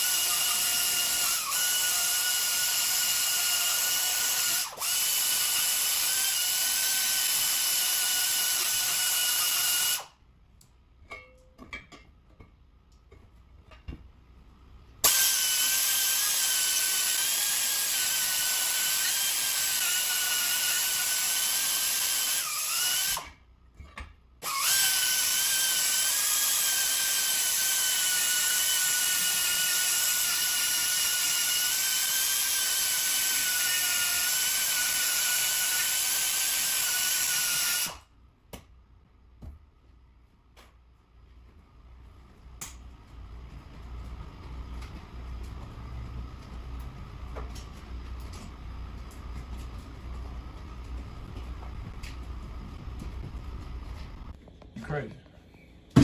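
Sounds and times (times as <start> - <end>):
pneumatic die grinder whining: 0.0 - 10.1, 15.0 - 23.4, 24.4 - 38.0.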